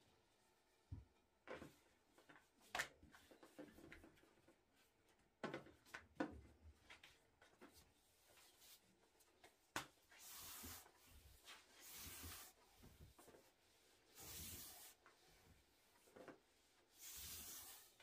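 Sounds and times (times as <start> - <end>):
rolling pin rubbing on dough: 10.2 - 18.0.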